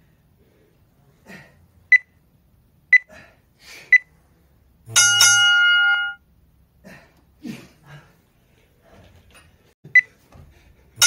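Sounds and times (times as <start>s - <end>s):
long loud beep: 5.0s - 6.2s.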